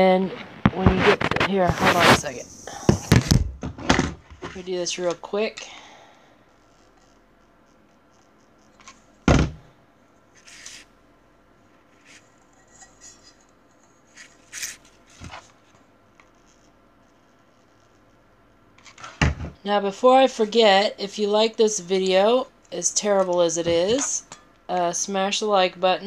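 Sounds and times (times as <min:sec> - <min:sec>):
loud thunk on work surface: 0:09.3 - 0:09.6.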